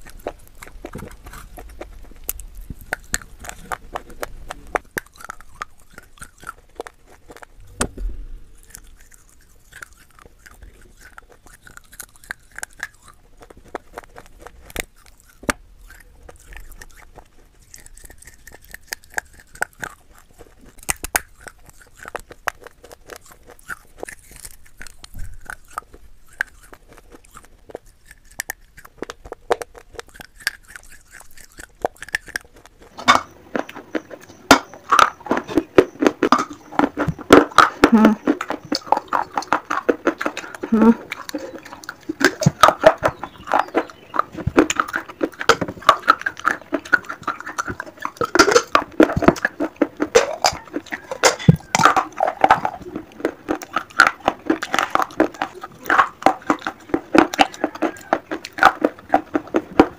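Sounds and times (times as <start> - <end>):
clay crunching between teeth: 0.0 - 59.9.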